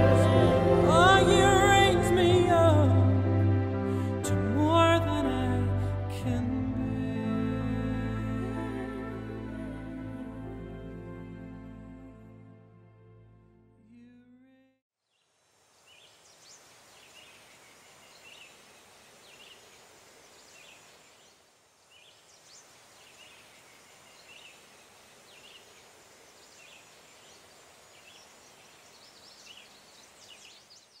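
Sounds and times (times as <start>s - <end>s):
small birds chirping: 15.1s - 31.0s.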